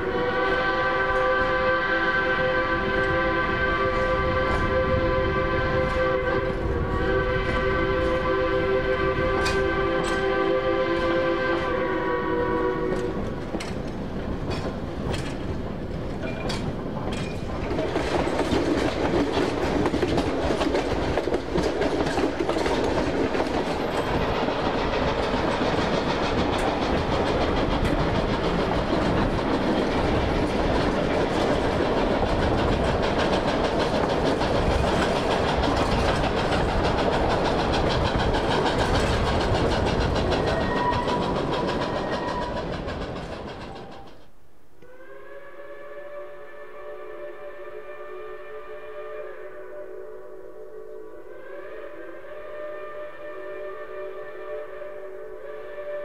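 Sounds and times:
steam train wheels clattering: 0.0 - 44.5.

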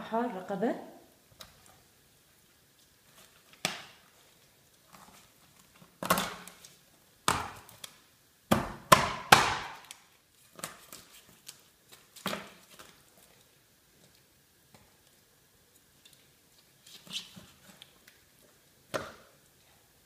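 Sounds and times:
cleaver chopping on cutting board: 8.5 - 9.8.

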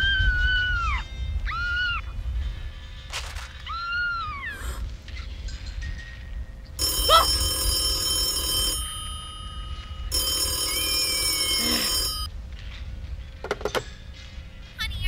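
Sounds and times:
rotary telephone bell ringing: 6.8 - 12.3.

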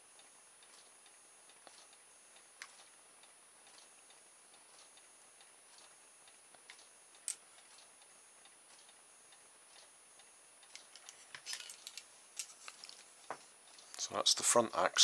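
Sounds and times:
faint clicks and knocks: 9.7 - 14.0.

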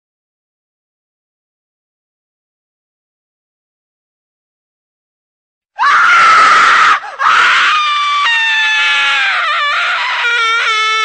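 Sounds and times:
loud high-pitched scream: 5.8 - 11.0.

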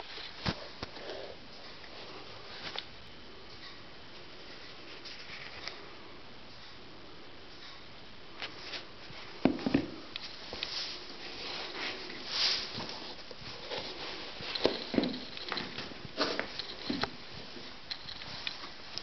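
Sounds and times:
scuffing and rustling: 8.4 - 19.0
boots knocking on tile floor: 9.4 - 10.0.

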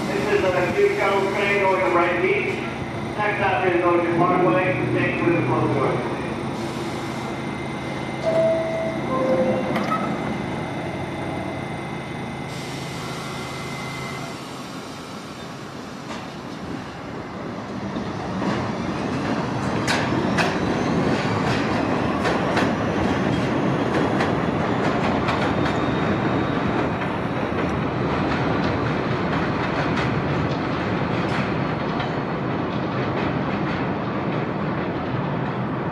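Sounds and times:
subway train running: 0.0 - 35.9
two-tone descending chime: 8.2 - 10.3.

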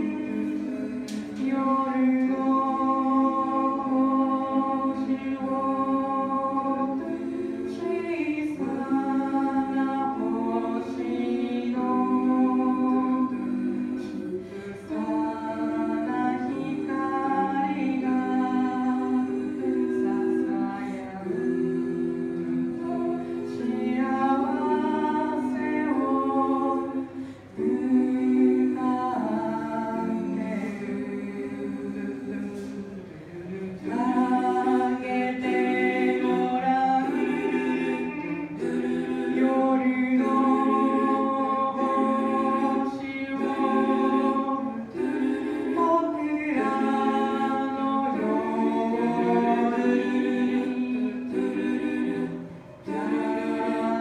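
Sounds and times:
a cappella group singing: 0.0 - 54.0.

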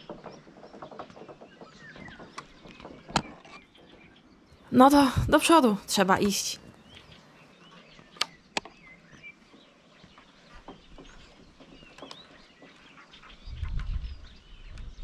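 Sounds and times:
footsteps on wooden planks: 0.0 - 4.1, 9.2 - 14.0
faint birds chirping: 0.0 - 15.0.

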